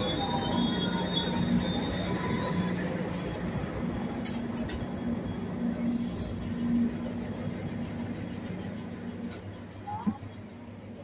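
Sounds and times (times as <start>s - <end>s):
high wheel squeal: 0.0s - 3.4s
train low hum: 0.0s - 11.0s.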